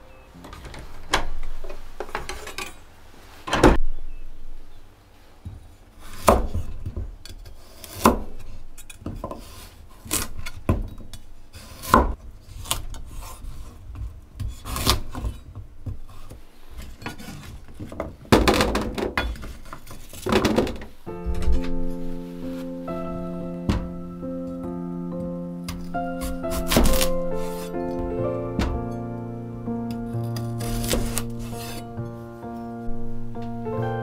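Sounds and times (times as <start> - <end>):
knife cutting on wooden board: 25.8 - 27.8, 30.4 - 31.8.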